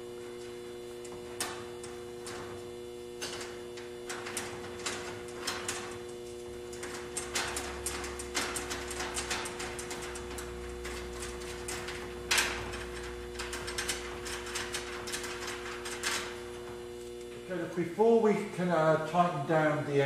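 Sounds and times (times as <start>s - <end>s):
steady electrical hum: 0.0s - 20.0s.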